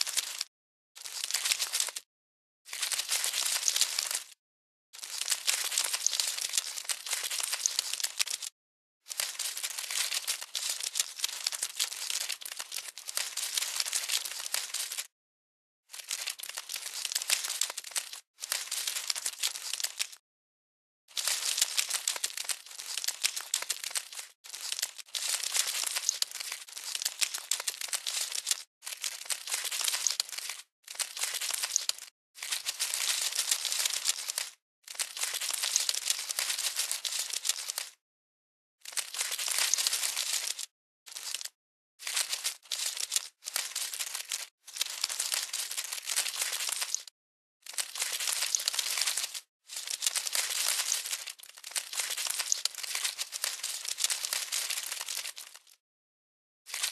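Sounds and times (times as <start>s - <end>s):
crackly rustling sound effect: 0.0s - 2.1s, 2.7s - 4.4s, 5.0s - 15.2s, 15.9s - 20.2s, 21.1s - 38.0s, 38.8s - 55.8s, 56.7s - 56.9s.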